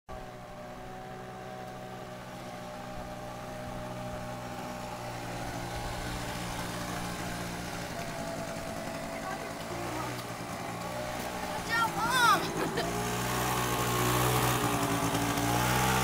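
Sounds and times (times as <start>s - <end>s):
motor scooter engine running: 0.2s - 16.0s.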